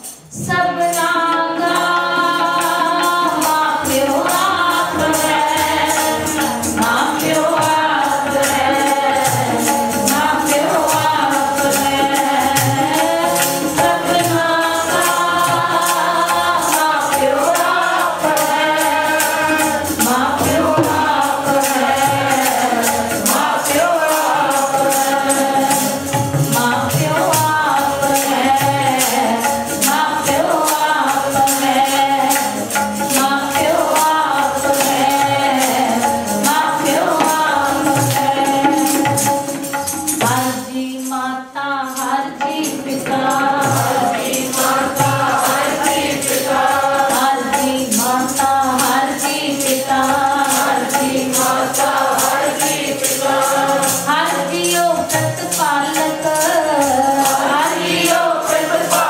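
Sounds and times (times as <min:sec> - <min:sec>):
harmonium: 0:00.0 - 0:59.0
tabla: 0:00.0 - 0:59.0
person singing a devotional hymn: 0:00.4 - 0:59.0
steady percussive beat: 0:01.7 - 0:40.9, 0:42.2 - 0:59.0.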